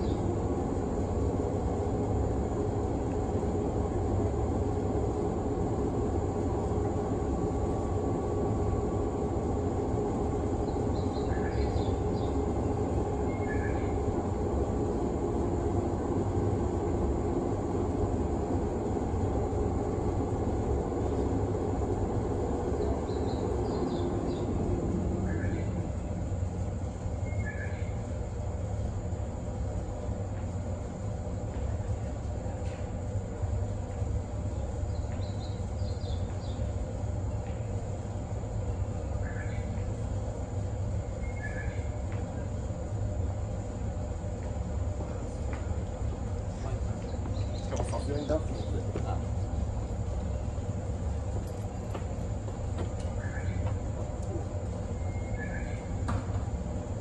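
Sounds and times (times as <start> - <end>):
train equipment hum: 0.0 - 57.0.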